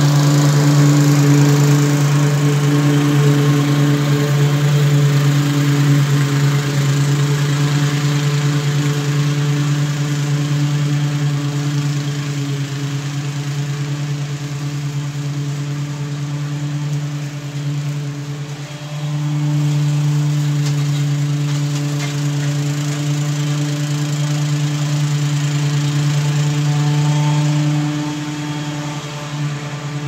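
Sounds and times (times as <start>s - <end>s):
lawn mower engine running: 0.0s - 30.0s.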